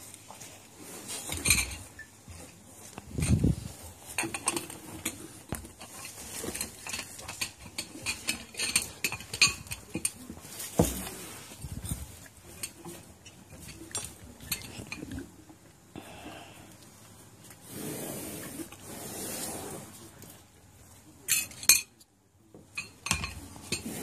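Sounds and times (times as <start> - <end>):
crockery and cutlery clinking: 1.1 - 2.5, 3.1 - 15.4, 21.2 - 24.0.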